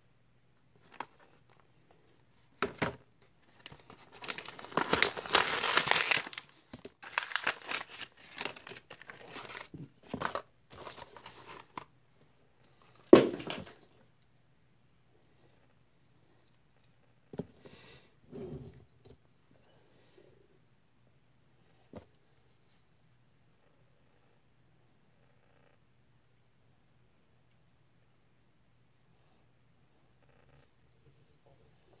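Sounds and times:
plastic packaging crinkling and tearing: 3.5s - 11.8s.

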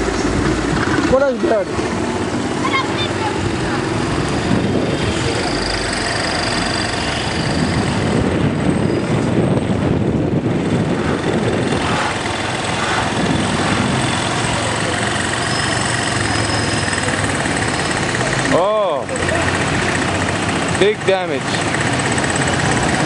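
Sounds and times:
road noise: 0.0s - 23.0s
vehicle engine running: 0.0s - 23.0s.

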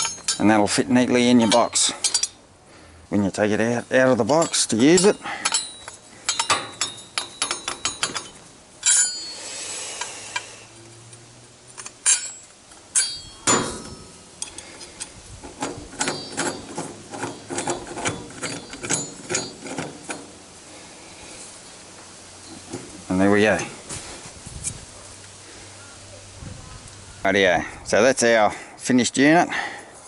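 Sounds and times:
metal clatter: 0.0s - 0.8s, 1.4s - 2.4s, 4.1s - 9.4s, 11.8s - 20.4s
steel parts clinking: 0.0s - 2.4s, 3.6s - 20.8s, 22.4s - 23.8s
metal knocks: 4.2s - 9.2s, 12.1s - 14.2s, 15.4s - 20.4s.

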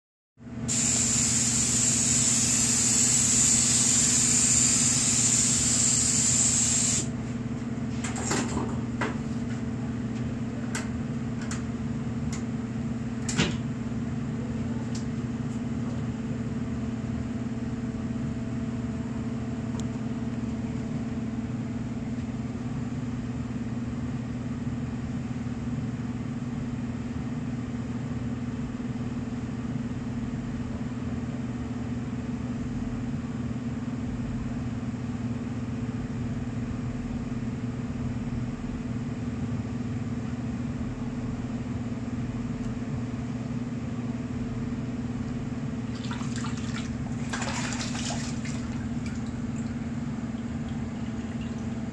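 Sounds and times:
spray gun hissing: 0.7s - 7.1s.

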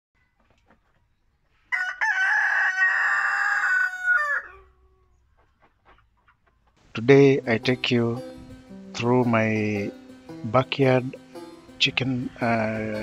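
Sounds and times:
rooster crowing: 1.7s - 5.0s, 11.9s - 13.0s.

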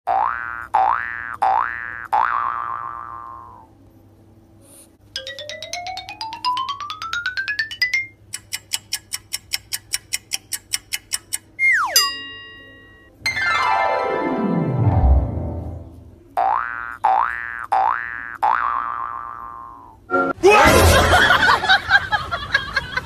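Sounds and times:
rising plinking notes: 5.2s - 8.2s, 11.6s - 16.0s
sharp ticks: 8.3s - 11.6s.

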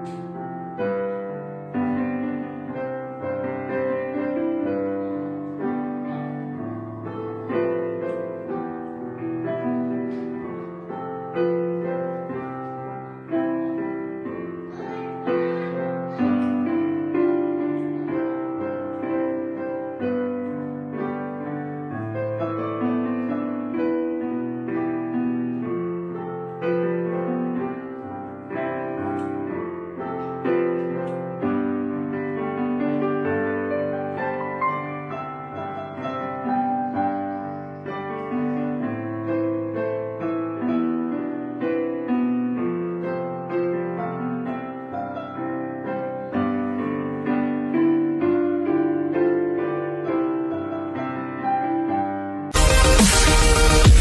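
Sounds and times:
slow instrumental chords: 52.5s - 54.0s.

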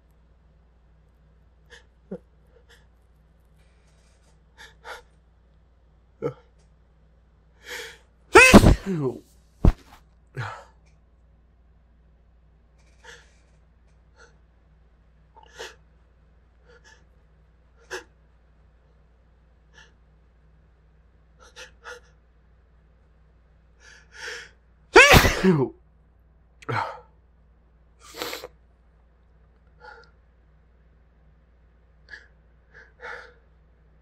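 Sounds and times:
person sneezing: 8.4s - 9.8s, 25.0s - 25.7s, 28.1s - 28.5s
catching breaths: 32.1s - 33.5s.

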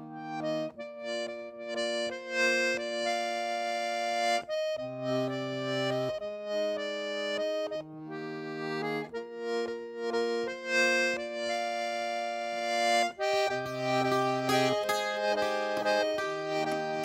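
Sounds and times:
accordion playing slow chords: 0.0s - 17.0s.

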